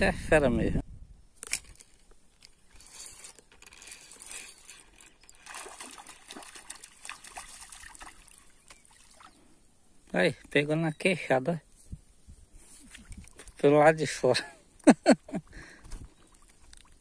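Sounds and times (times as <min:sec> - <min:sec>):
small water splashes: 0:04.9 - 0:09.5, 0:15.8 - 0:17.0
fish swirling at surface: 0:05.3 - 0:08.4.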